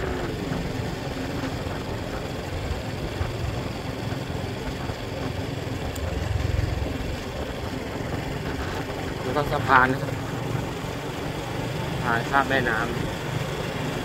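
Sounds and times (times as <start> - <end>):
motorcycle engine rumble: 0.0 - 14.0
wind rushing over microphone: 5.1 - 9.3.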